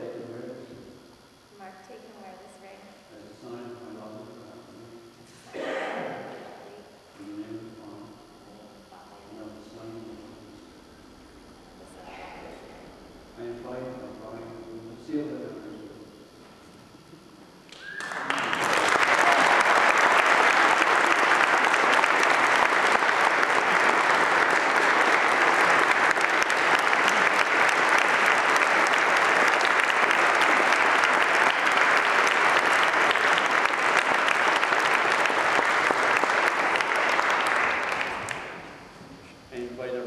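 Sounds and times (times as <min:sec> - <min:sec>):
crowd applauding: 0:17.7 - 0:38.9.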